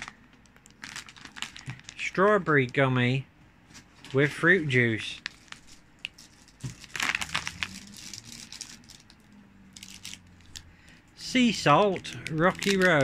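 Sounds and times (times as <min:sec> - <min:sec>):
wrappers crinkling: 0:00.0 - 0:02.8, 0:05.0 - 0:10.7, 0:11.6 - 0:13.0.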